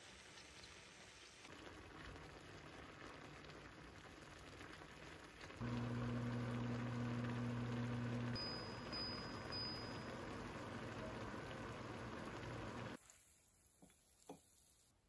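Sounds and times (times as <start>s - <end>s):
sauce bubbling and spitting in pan: 0.0s - 7.2s.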